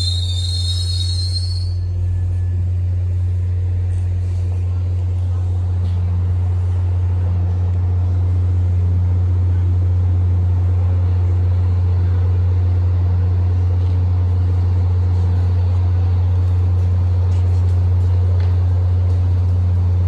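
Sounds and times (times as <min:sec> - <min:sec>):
diesel locomotive idling: 0:00.0 - 0:20.0.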